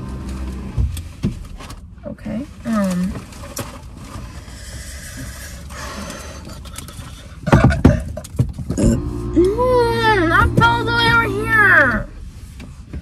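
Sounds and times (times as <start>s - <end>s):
low rumble: 8.8s - 13.0s.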